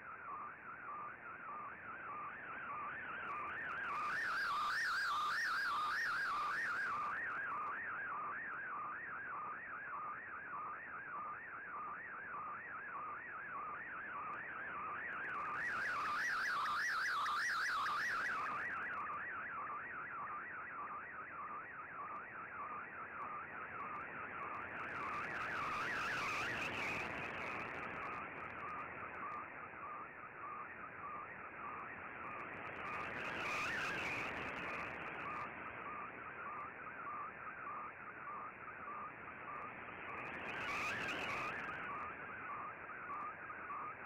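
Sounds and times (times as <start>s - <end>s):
warbling radio data tone: 30.6s - 44.0s
radio hiss: 39.2s - 42.4s.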